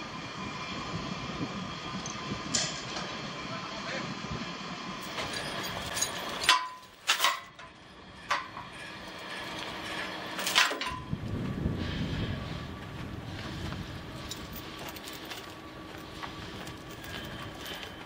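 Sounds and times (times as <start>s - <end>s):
steady engine hum: 0.0s - 18.0s
sharp metallic clanks: 5.0s - 11.1s.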